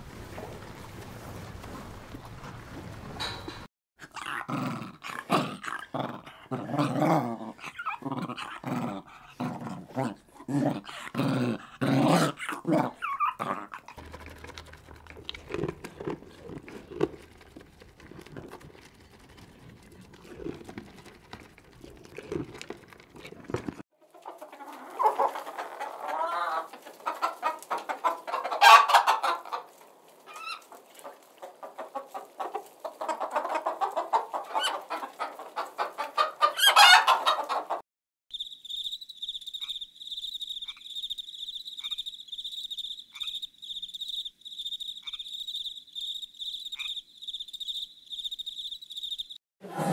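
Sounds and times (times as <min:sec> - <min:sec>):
dog breathy vocal sounds: 0:05.1 - 0:06.8, 0:07.5 - 0:23.8
hen clucking: 0:24.0 - 0:37.8.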